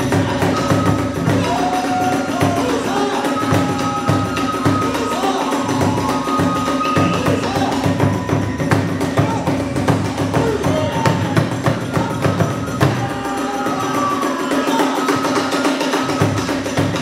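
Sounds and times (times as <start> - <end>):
bamboo flute holding notes: 0.0 - 17.0
hand cymbals clashing: 0.0 - 17.0
large drum beating fast rhythm: 0.0 - 17.0.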